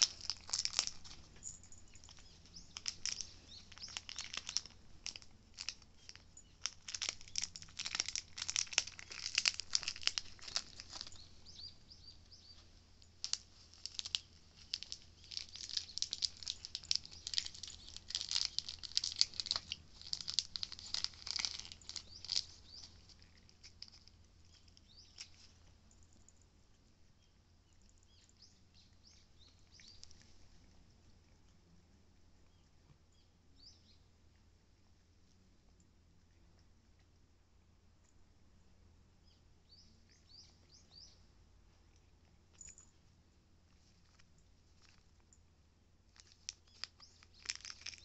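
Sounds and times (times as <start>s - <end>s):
foil packet crinkling: 0.0s - 25.8s, 46.1s - 48.0s.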